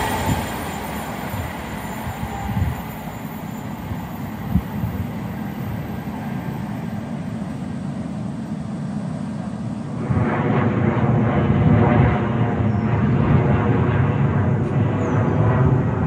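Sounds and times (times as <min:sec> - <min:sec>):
train rumbling past: 0:00.0 - 0:16.0.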